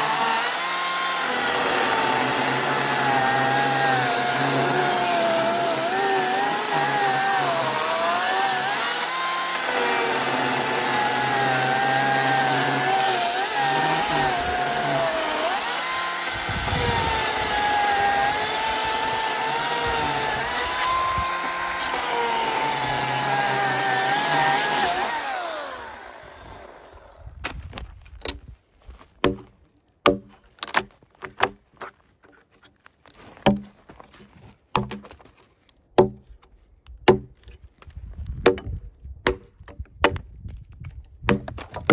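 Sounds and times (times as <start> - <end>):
chainsaw cutting log: 0.0 - 28.4, 37.1 - 37.4
hatchet chopping wood: 29.2 - 31.6, 33.4 - 33.7, 34.7 - 35.2, 36.0 - 36.4, 37.0 - 37.6, 38.4 - 40.3, 41.2 - 41.9.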